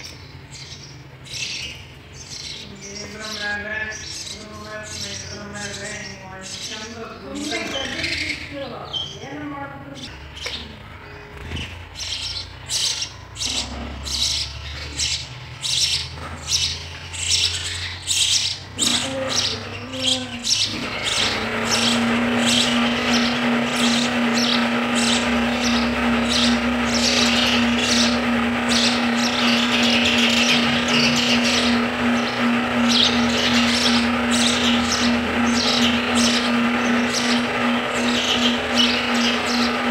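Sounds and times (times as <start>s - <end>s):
chicks begging chorus: 0.0s - 39.9s
sparrows chirping: 0.0s - 39.9s.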